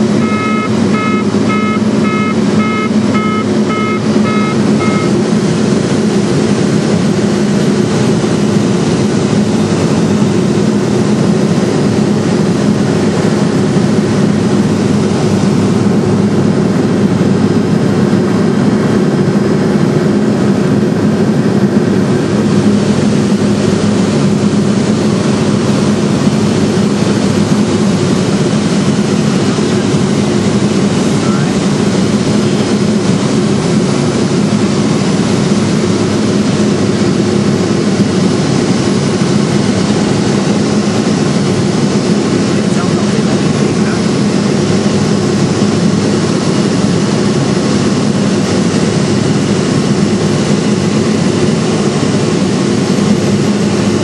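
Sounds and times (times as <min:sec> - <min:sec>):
propeller plane cabin drone: 0:00.0 - 0:54.0
electronic beeps: 0:00.2 - 0:05.2.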